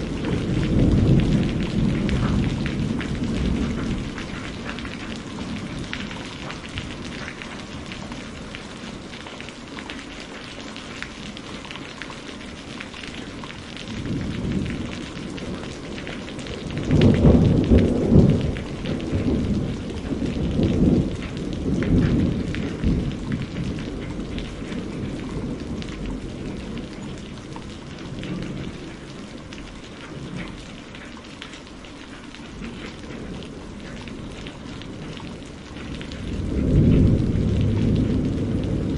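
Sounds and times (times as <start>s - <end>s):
heavy rain: 0.0s - 38.9s.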